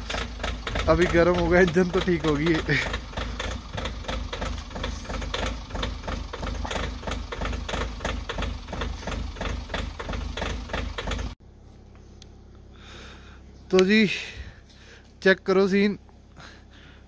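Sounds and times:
knocking inside engine: 0.0s - 11.4s
diesel engine idling: 0.0s - 15.3s.

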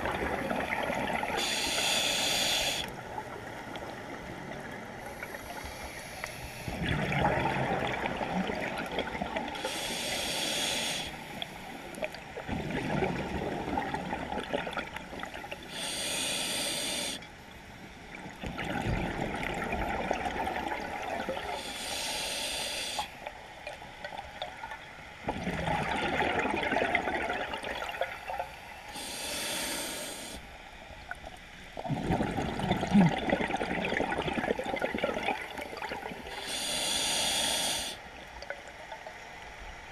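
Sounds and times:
gurgling exhaled bubbles: 0.0s - 2.0s, 6.7s - 9.7s, 12.0s - 15.5s, 18.4s - 21.6s, 25.2s - 28.4s, 31.8s - 37.0s
regulator hiss on inhale: 1.3s - 3.0s, 5.0s - 6.8s, 9.6s - 12.0s, 15.6s - 17.4s, 21.4s - 23.3s, 28.5s - 30.6s, 36.1s - 38.1s.

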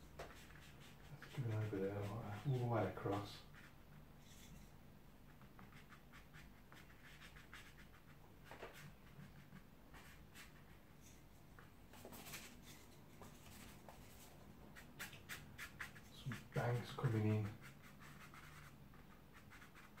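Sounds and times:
brush scratching on paper: 0.1s - 20.0s.

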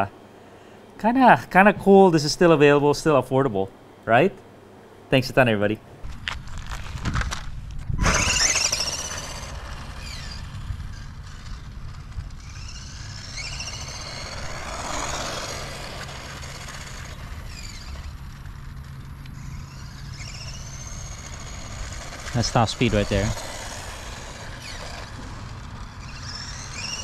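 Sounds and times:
low steady rumble: 0.0s - 27.0s
high-pitched electric motor whine: 6.1s - 27.0s.

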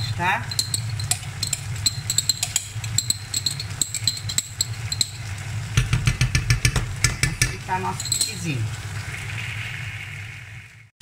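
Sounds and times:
food sizzling in pans: 0.0s - 10.9s
spoon knocking in pan: 0.4s - 8.4s.

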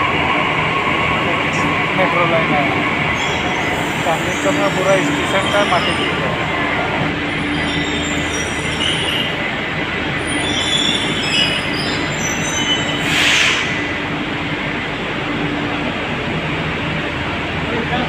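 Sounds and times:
train rumbling: 0.0s - 18.0s
wheel squeals: 3.2s - 6.4s, 7.2s - 9.5s, 10.2s - 13.6s.

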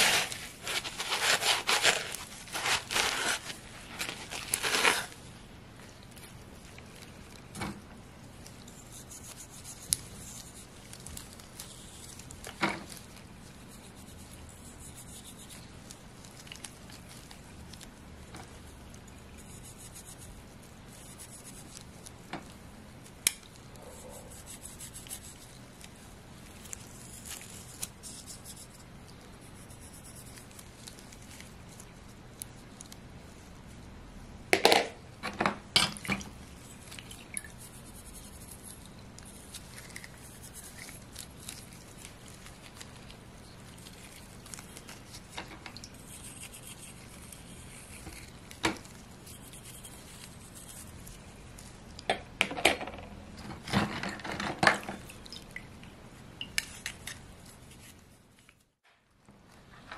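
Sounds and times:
faint brushing: 0.0s - 7.5s, 8.2s - 33.9s, 36.4s - 52.0s, 56.6s - 58.8s.

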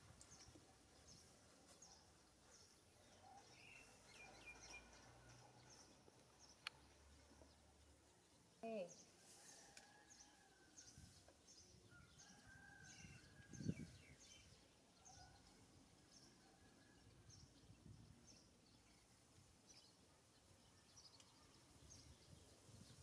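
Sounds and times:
bird chirping: 0.2s - 9.1s.

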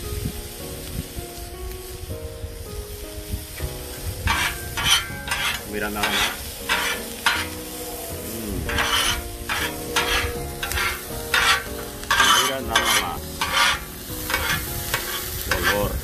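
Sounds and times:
vegetables sizzling: 0.0s - 16.0s
metal spatulas scraping griddle: 4.2s - 16.0s.

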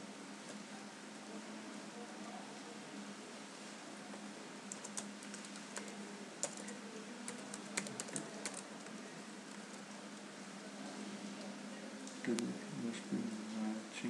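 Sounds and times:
faint low hum: 0.0s - 14.0s
keyboard typing: 4.7s - 10.2s.

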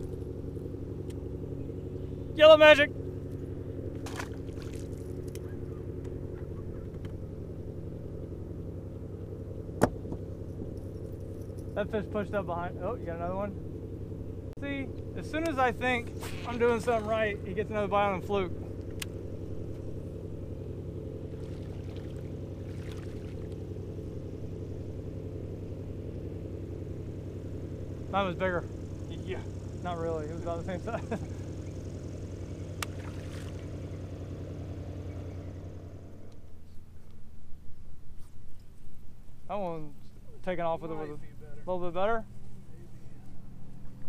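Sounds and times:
boat motor droning: 0.0s - 37.1s, 38.6s - 44.0s.

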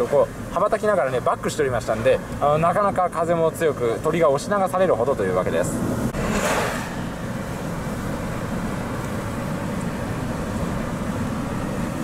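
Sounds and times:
car road and engine rumble: 0.0s - 12.0s
brief hiss: 6.2s - 7.2s.

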